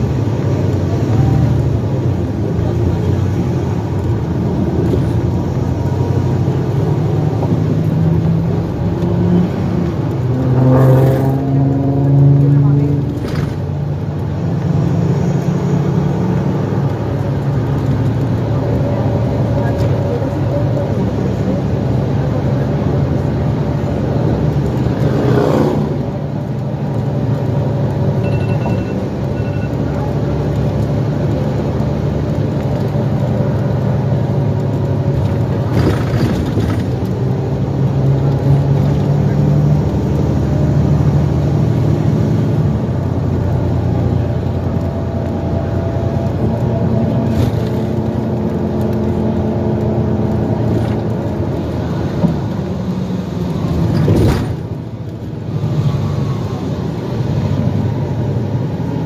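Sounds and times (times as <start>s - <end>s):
bus diesel engine running: 0.0s - 10.8s, 11.5s - 59.0s
bus body knocking and rattling: 13.0s - 14.4s, 29.8s - 39.3s, 46.1s - 55.5s.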